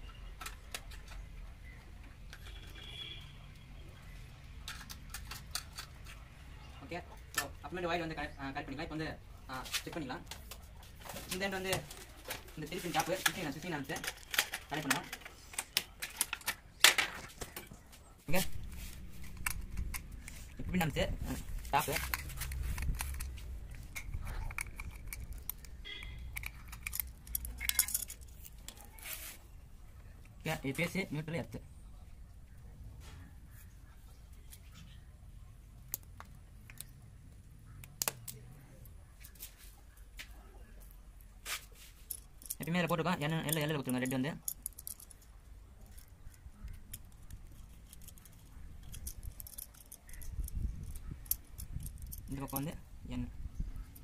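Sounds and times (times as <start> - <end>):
metal tools clinking: 21.4 - 28.6, 41.9 - 52.8.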